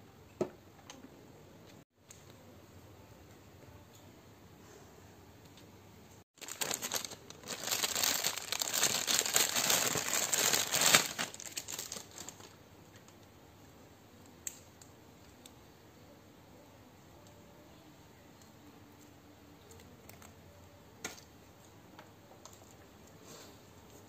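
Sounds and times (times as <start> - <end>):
plastic bag crinkling: 6.4 - 12.6.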